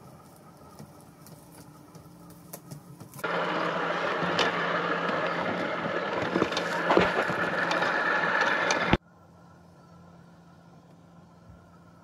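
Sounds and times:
robotic lawn mower whirring: 3.2s - 9.0s.

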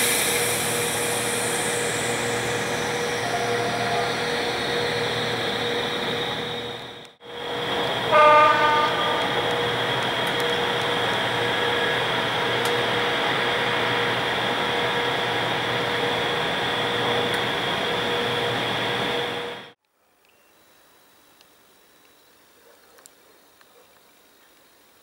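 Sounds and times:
locomotive blowers rushing: 0.0s - 19.8s.

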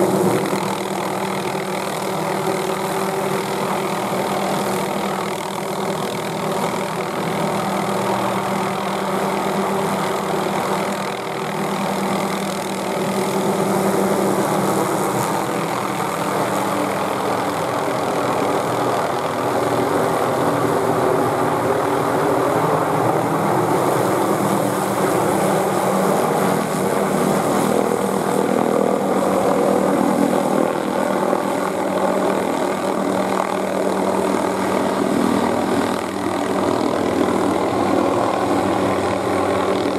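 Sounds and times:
helicopter hovering overhead: 0.0s - 39.9s.

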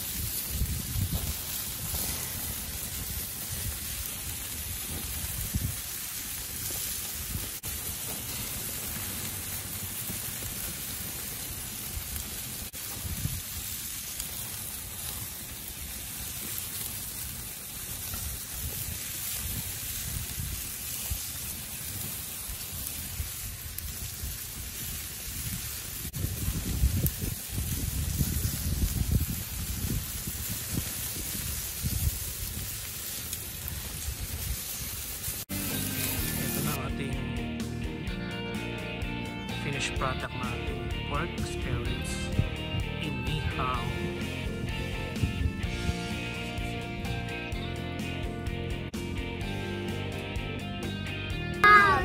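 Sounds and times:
wind rumble on microphone: 0.0s - 7.7s, 12.0s - 13.8s, 18.0s - 35.4s, 43.8s - 46.2s
meat sizzling on grill: 0.0s - 52.0s.

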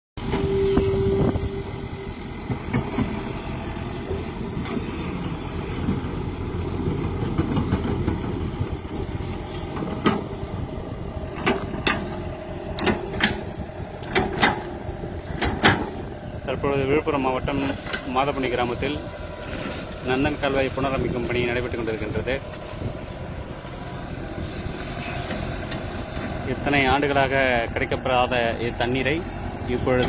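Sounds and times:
steady tone: 0.2s - 4.2s
excavator diesel engine: 0.2s - 30.0s.

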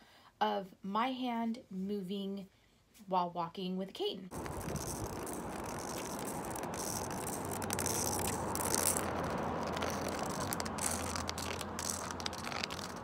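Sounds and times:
cane tip rolling on pavement: 4.3s - 13.0s.

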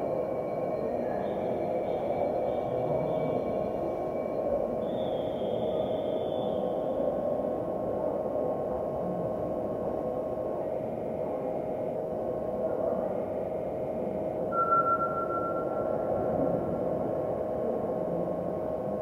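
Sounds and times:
steady hum: 0.0s - 19.0s
high steady tone: 14.4s - 16.9s.

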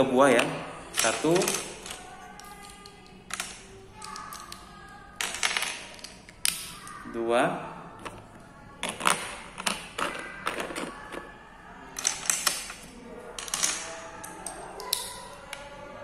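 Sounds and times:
plastic bricks clicking: 0.9s - 7.0s, 8.8s - 11.3s, 12.0s - 15.7s.

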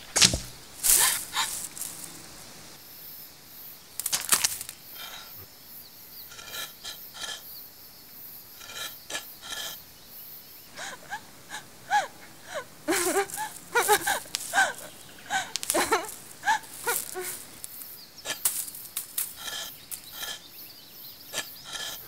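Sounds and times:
rustling scrape: 0.0s - 2.6s, 13.0s - 20.4s
squeaky chirps: 10.7s - 20.5s.

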